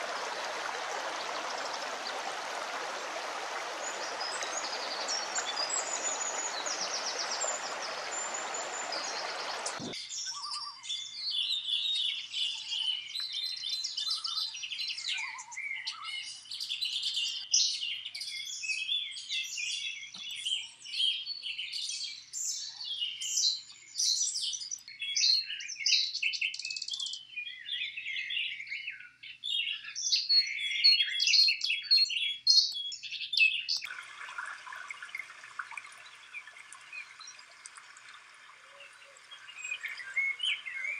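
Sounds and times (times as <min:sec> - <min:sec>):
creek rushing: 0:00.0 - 0:10.0, 0:33.8 - 0:40.9
running water hiss: 0:00.0 - 0:10.0, 0:33.8 - 0:40.9
songbirds chirping: 0:00.0 - 0:40.9.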